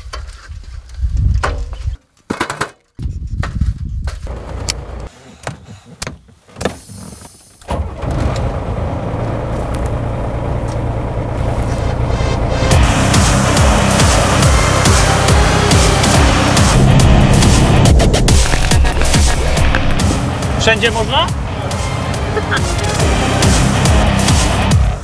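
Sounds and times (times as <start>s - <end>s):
truck engine droning: 7.6s - 25.0s.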